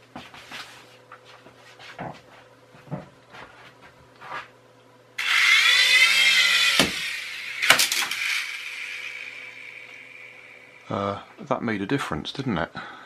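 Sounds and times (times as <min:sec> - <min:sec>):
toy helicopter rotor whine: 0:05.2 - 0:11.3
sharp knocks: 0:06.7 - 0:07.0.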